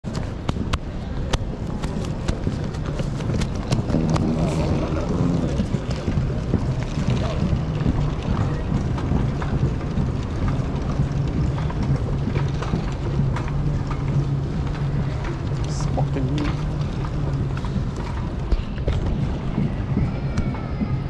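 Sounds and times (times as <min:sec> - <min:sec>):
steady low hum: 0:00.1 - 0:21.0
low rumble: 0:02.4 - 0:21.0.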